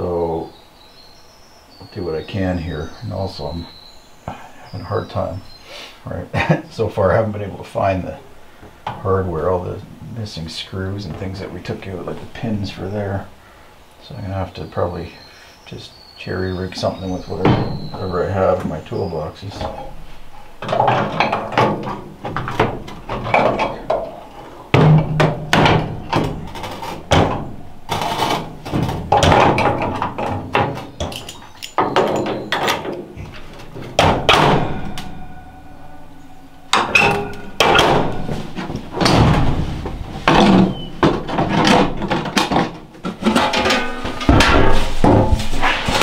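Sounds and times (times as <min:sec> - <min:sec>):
cast iron parts clanking: 0:06.4 - 0:13.4, 0:16.8 - 0:46.0
metallic ring: 0:25.0 - 0:30.2, 0:31.0 - 0:39.0.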